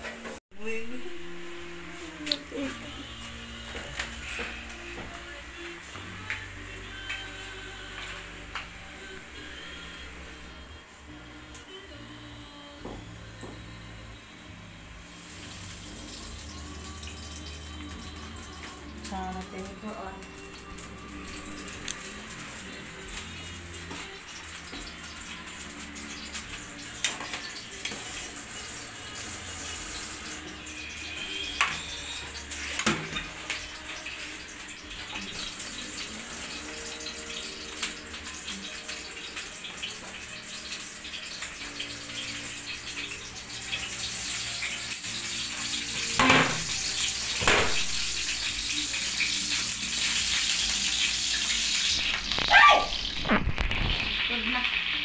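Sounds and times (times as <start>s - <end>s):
steady kitchen hiss: 0.0s - 55.0s
onions sizzling in hot oil: 14.4s - 55.0s
pots and utensils clinking: 20.4s - 29.1s, 29.9s - 54.4s.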